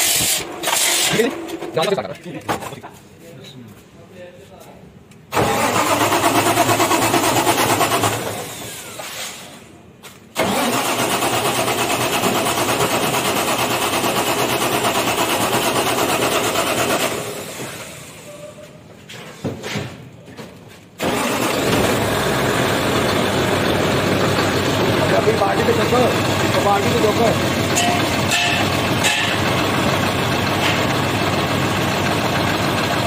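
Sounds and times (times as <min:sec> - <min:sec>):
engine winding down: 0:05.3 - 0:09.2, 0:10.4 - 0:18.3, 0:21.0 - 0:33.0
diesel engine running: 0:05.3 - 0:09.7, 0:10.3 - 0:18.4, 0:21.0 - 0:33.0.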